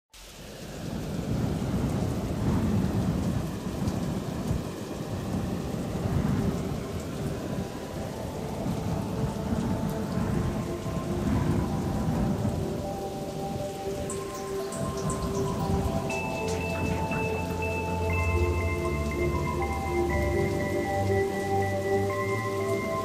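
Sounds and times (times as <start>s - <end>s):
rain: 0.1s - 23.0s
low rolling rumbles: 0.4s - 23.0s
held music notes: 7.0s - 23.0s.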